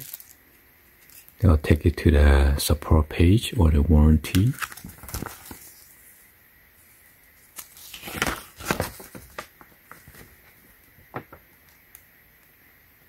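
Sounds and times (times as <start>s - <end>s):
paper rustling and crinkling: 4.3s - 6.1s, 7.4s - 11.5s.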